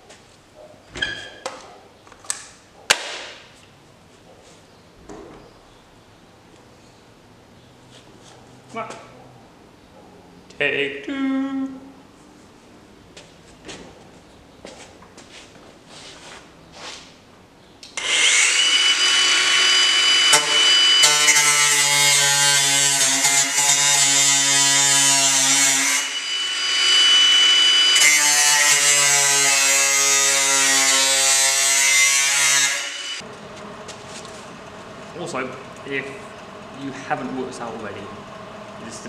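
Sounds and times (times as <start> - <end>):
angle grinder whining: 17.9 - 39.0
grinder grinding metal: 18.0 - 39.0.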